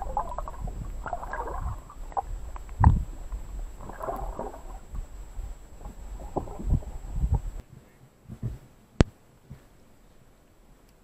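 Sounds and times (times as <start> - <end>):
low rumble: 0.0 - 7.6
muffled water sloshing underwater: 0.0 - 7.6.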